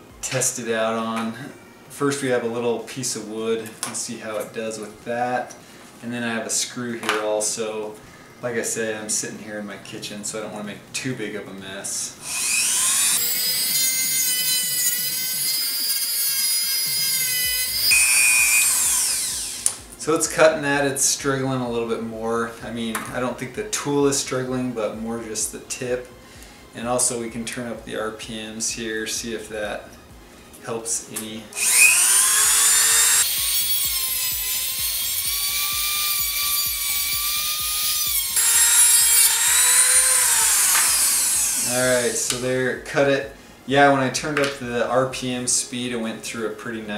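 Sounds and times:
rotary tool high-pitched whine: 0:12.1 - 0:20.0, 0:31.5 - 0:42.6
cutoff wheel cutting wood: 0:12.2 - 0:19.9, 0:31.6 - 0:42.5.

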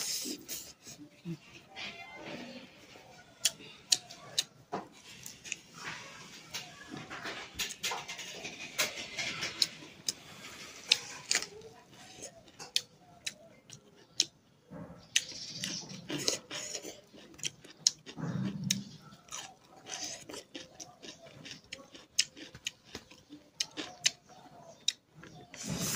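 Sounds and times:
person chewing with smacks: 0:07.5 - 0:14.4, 0:15.0 - 0:25.9.

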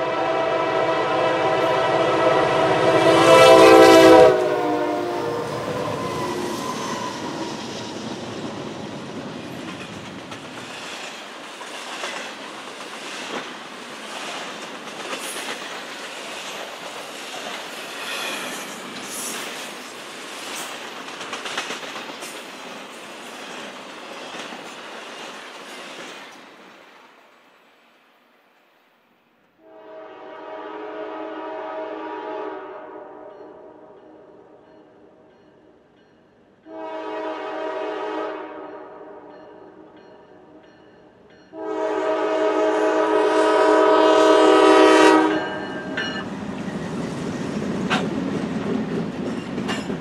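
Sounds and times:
locomotive air horn chord: 0:00.0 - 0:07.4, 0:29.6 - 0:33.9, 0:36.7 - 0:39.3, 0:41.5 - 0:45.6
train wheels clicking over rail joints: 0:05.8 - 0:26.8, 0:45.4 - 0:50.0.

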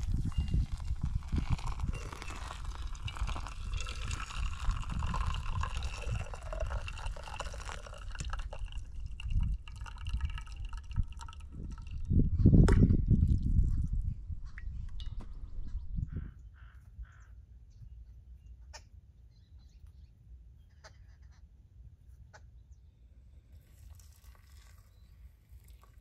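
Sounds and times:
hot water pouring: 0:00.0 - 0:13.8, 0:23.5 - 0:26.0.

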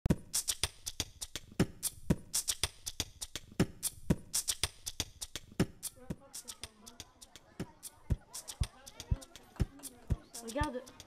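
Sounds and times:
deep kick drums: 0:00.1 - 0:00.4, 0:01.6 - 0:02.4, 0:03.6 - 0:04.4
electronic drum beat: 0:00.1 - 0:11.0
hi-hat and snare hits: 0:00.1 - 0:11.0.

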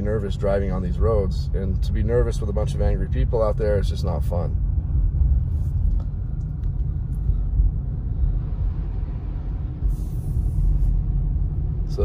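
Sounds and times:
car engine rumble: 0:00.0 - 0:12.0
tyres on snowy road: 0:00.0 - 0:12.0.

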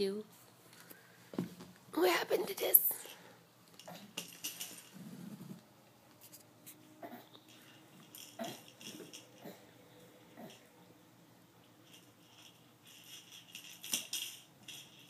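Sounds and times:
fabric toy jingling rattles: 0:03.8 - 0:05.1, 0:07.5 - 0:09.4, 0:11.8 - 0:15.0.

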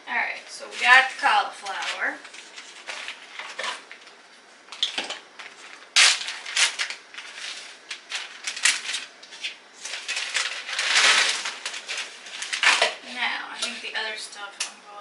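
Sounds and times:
plastic bag crinkling: 0:04.7 - 0:13.2.

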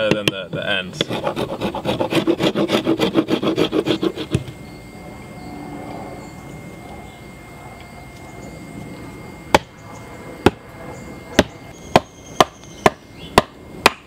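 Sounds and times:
rasp filing wood: 0:00.9 - 0:04.5.

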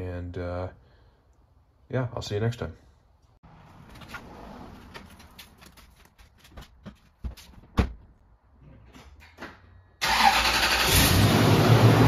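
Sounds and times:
truck engine starting: 0:10.0 - 0:12.0.

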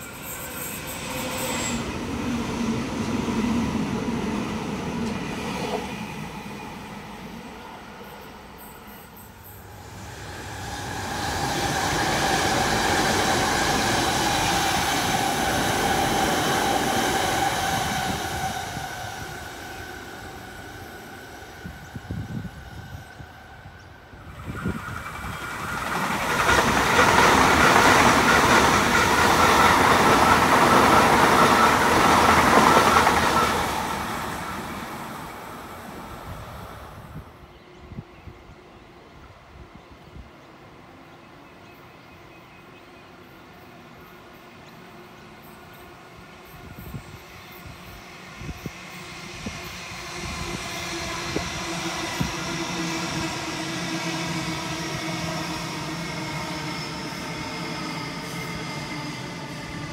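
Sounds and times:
train wheel rumble: 0:09.5 - 0:37.3.

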